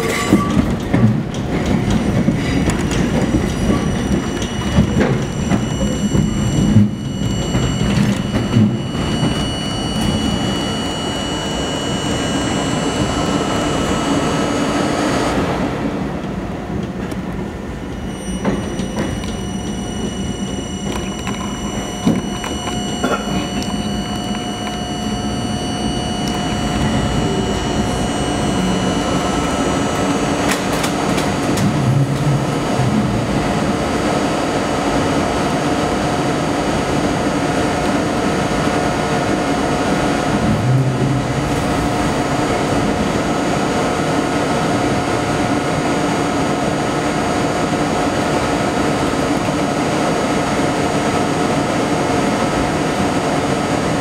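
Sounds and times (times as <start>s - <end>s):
subway train motors and wheels: 0.0s - 54.0s
steady tones: 1.9s - 15.9s, 17.6s - 33.0s.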